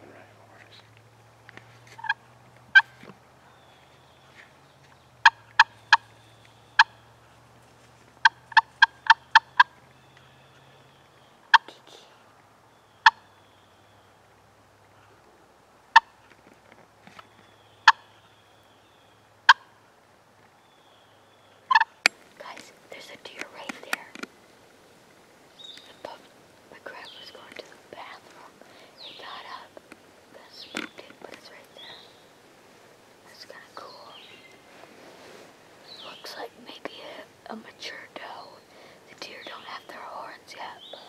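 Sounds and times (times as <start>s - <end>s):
wild turkey clucking: 1.9s - 3.2s, 5.2s - 7.3s, 8.2s - 10.3s, 11.5s - 11.7s, 13.0s - 13.3s, 15.9s - 16.3s, 17.8s - 18.2s, 19.5s - 19.9s, 21.6s - 22.2s.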